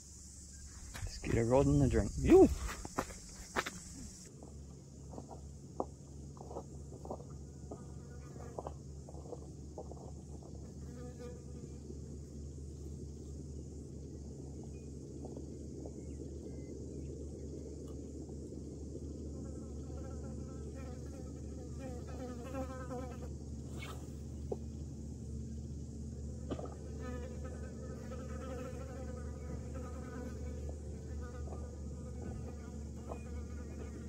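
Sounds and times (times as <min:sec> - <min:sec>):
fly buzzing: 0:19.4 - 0:24.3, 0:26.6 - 0:34.0.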